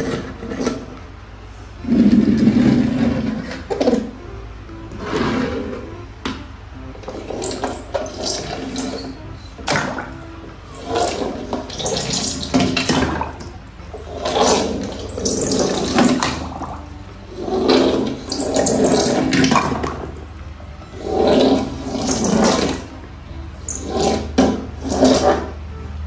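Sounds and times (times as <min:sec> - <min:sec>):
water bubbling: 0:07.0 - 0:23.0
water rushing and splashing: 0:07.0 - 0:23.0.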